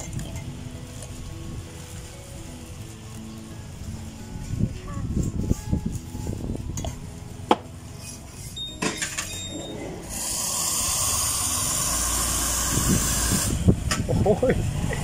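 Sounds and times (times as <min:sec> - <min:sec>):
steam wand hissing: 0:10.0 - 0:13.7.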